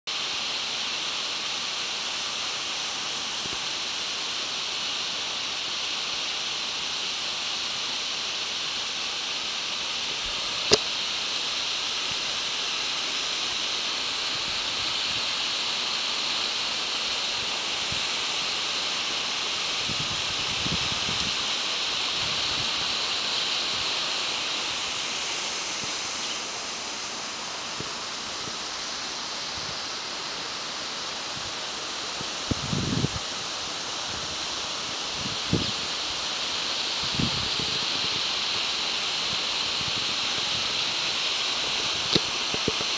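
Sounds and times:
waterfall rushing: 0.1 - 42.9
sharp click: 10.6 - 10.9.

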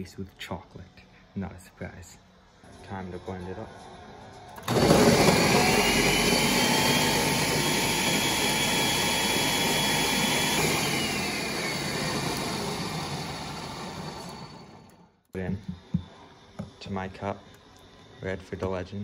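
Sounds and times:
blender motor whining: 4.5 - 19.0.

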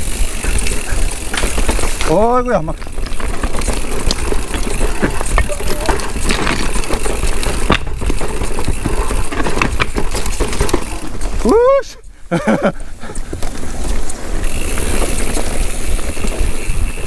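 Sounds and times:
chain and frame rattling: 0.0 - 11.5
bike tyres on rock and gravel: 0.0 - 17.0.

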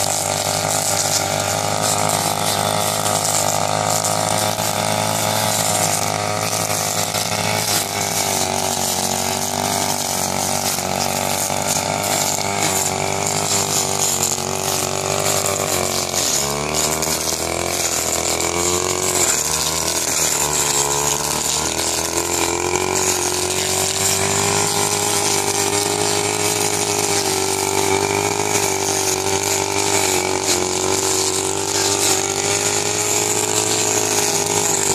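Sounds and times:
brush cutter engine at high revs: 0.0 - 34.9.

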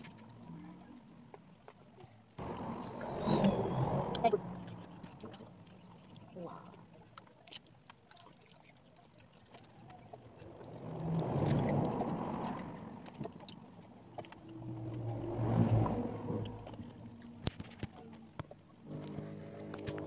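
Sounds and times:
low engine rumble: 0.0 - 7.1, 9.6 - 20.0.

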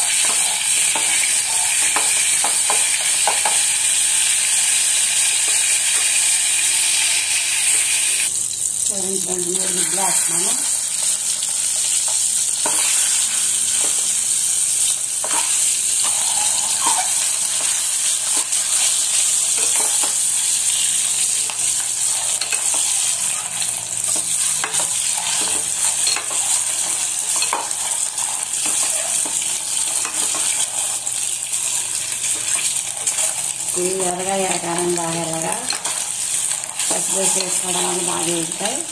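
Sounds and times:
eggs sizzling in hot oil: 0.0 - 38.9
metal spatula tapping and scraping: 0.1 - 3.7, 15.2 - 20.8, 22.3 - 23.4, 24.0 - 31.3.

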